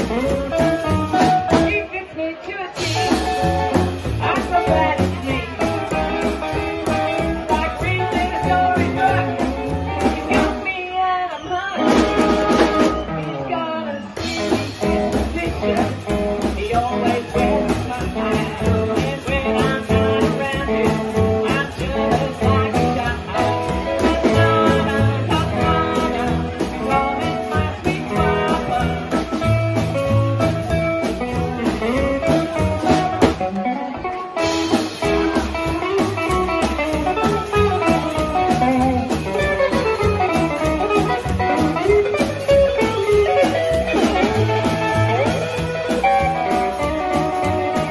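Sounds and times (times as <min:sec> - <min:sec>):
upright double bass: 0:00.0 - 0:01.9, 0:02.8 - 0:10.7, 0:11.9 - 0:13.4, 0:14.1 - 0:47.9
drums: 0:00.0 - 0:47.9
electric guitar: 0:00.0 - 0:47.9
rockabilly band playing: 0:00.0 - 0:47.9
woman singing: 0:01.5 - 0:03.6, 0:04.2 - 0:06.2, 0:06.9 - 0:12.1, 0:13.3 - 0:29.2.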